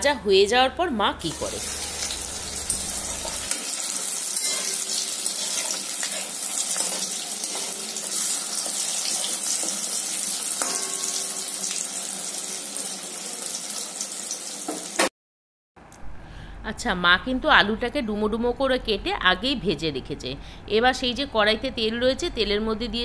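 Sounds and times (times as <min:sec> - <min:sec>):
hot oil sizzling: 0:01.2 - 0:15.1.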